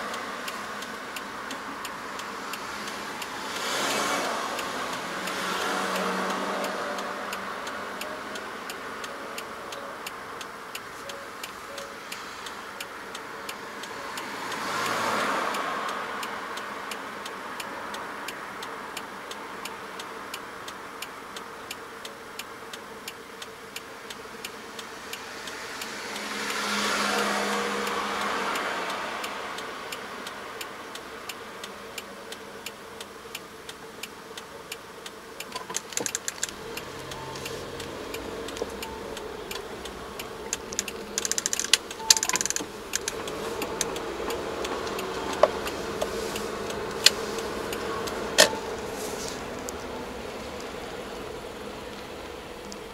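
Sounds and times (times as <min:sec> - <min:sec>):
vehicle passing: 0:00.0 - 0:20.1, 0:24.3 - 0:34.4, 0:35.0 - 0:52.9
car turn signal ticking: 0:00.0 - 0:52.9
low engine hum: 0:35.3 - 0:52.9.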